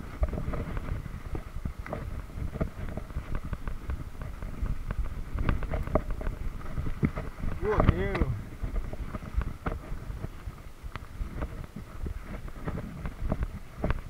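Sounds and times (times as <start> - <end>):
bike clicks and rattles: 0.0 - 14.0
wind rumble on microphone: 0.0 - 14.0.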